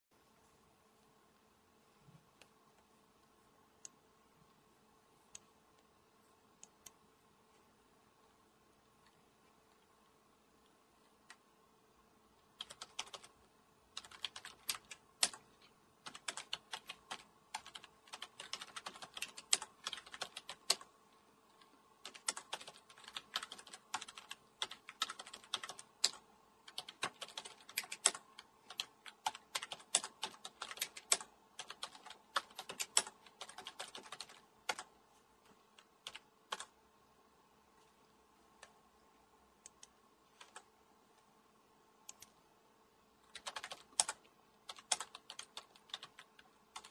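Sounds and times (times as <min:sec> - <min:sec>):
faint steady hum: 0:00.1 - 0:46.9
keyboard typing clicks: 0:12.6 - 0:13.3, 0:14.0 - 0:20.9, 0:21.6 - 0:34.9, 0:35.7 - 0:36.8, 0:43.2 - 0:46.9.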